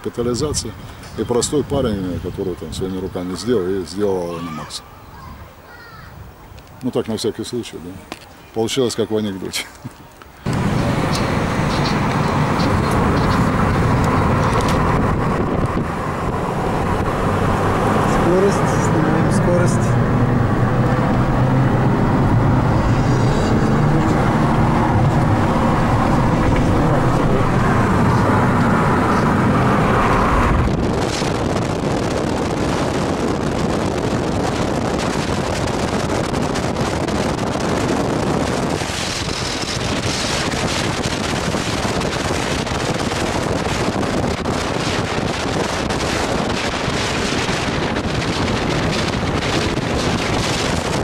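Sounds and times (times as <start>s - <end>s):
wind noise on microphone: 0.0s - 7.4s, 9.8s - 51.0s
car cabin road and engine drone: 10.4s - 51.0s.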